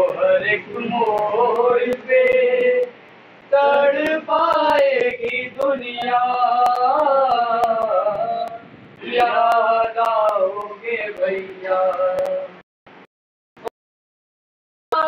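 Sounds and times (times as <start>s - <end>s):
faint sharp clicks: 4.0s - 7.0s.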